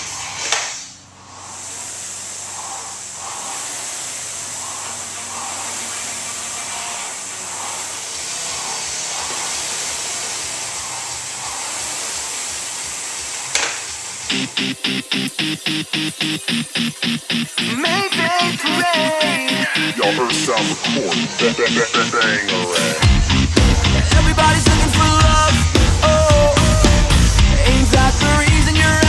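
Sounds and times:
rowing machine flywheel whooshing: 0.0 - 21.8.

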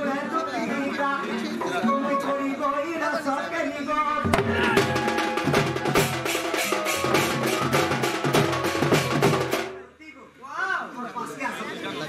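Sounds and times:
barrel drum played fast: 4.2 - 9.8
held instrument notes: 4.3 - 9.8.

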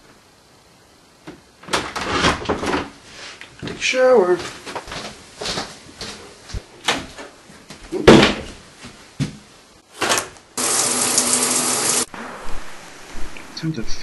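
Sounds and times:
knocks and footsteps: 2.6 - 10.4
shower head spraying water: 10.6 - 12.1.

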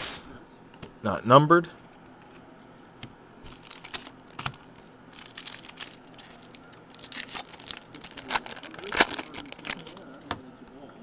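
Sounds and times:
foil wrapper crinkling and tearing: 3.5 - 10.2.

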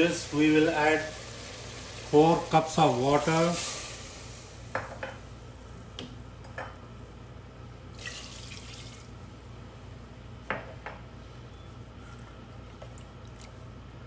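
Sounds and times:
short hiss: 3.4 - 4.6
bubbling in a pot: 7.9 - 9.2.

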